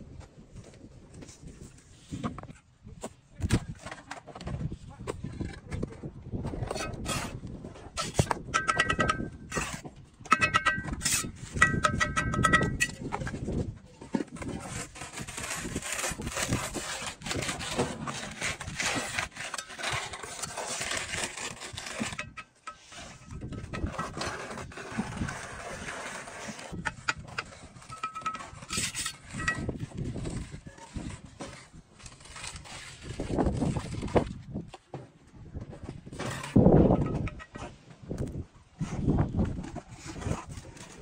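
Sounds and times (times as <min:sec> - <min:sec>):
trowel scraping mortar: 0:05.3 - 0:34.4, 0:38.8 - 0:41.0
trowel knocking on blocks: 0:08.1 - 0:13.0.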